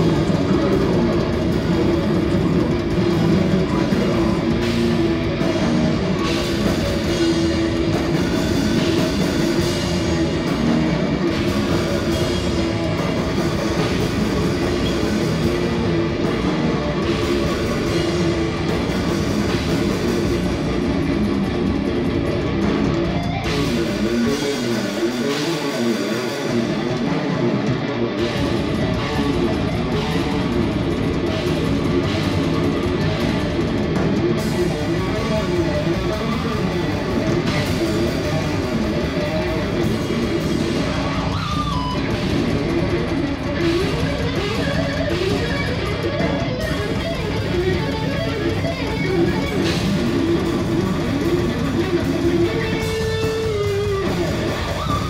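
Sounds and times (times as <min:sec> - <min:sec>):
heavy metal band playing live: 0:00.0 - 0:55.0
lone electric guitar line: 0:00.0 - 0:55.0.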